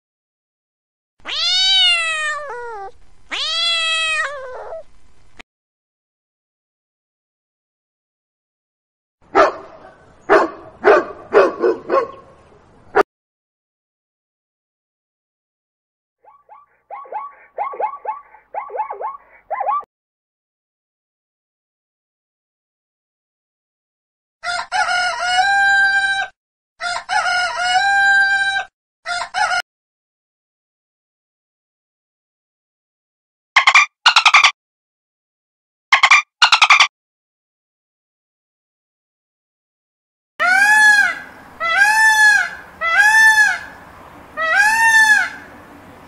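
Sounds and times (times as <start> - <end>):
peacock calling: 16.2 - 19.8, 33.6 - 34.5, 40.4 - 45.7
rooster crowing: 24.4 - 29.6.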